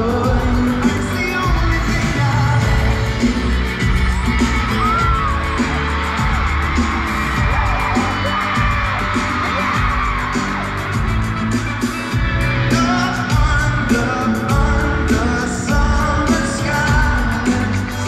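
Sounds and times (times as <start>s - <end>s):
person singing: 0.0s - 6.2s, 12.6s - 18.0s
live pop band playing: 0.0s - 18.0s
crowd yelling and whooping: 0.1s - 18.0s.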